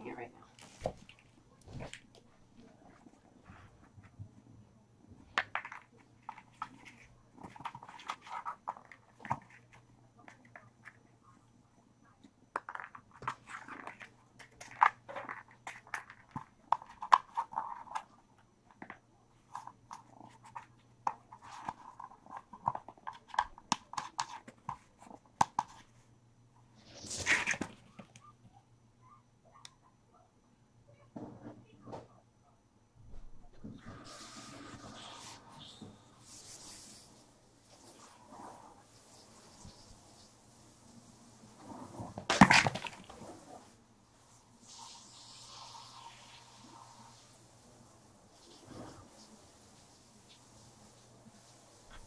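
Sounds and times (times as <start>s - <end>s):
kittens playing taps and scuffs: 5.2s - 11.3s, 12.2s - 26.0s, 26.8s - 28.6s.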